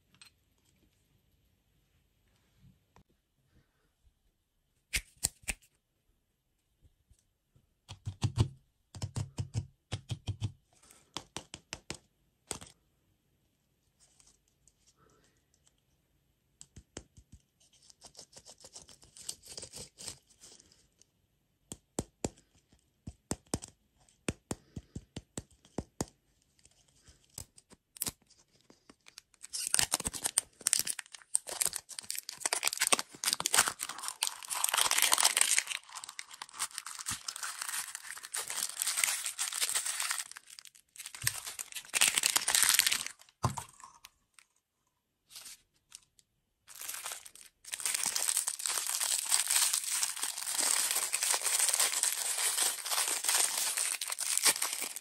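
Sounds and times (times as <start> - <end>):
plastic wrapper crinkling: 28.8 - 43.4, 46.7 - 55.0.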